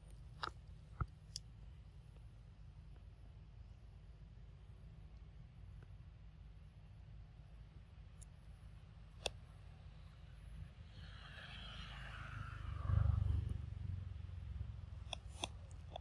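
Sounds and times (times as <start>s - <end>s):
vehicle passing by: 10.9s - 15.0s.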